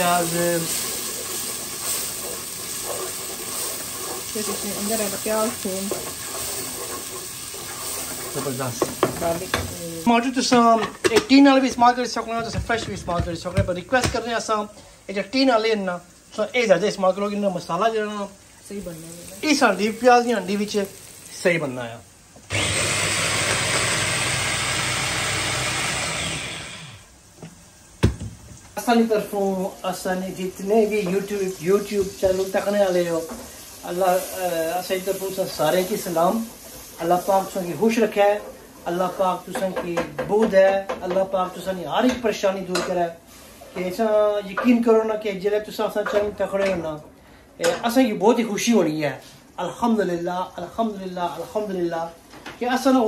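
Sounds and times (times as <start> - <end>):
wooden spatula scraping pot: 0.0 - 9.6
paste sizzling in hot oil: 0.0 - 44.2.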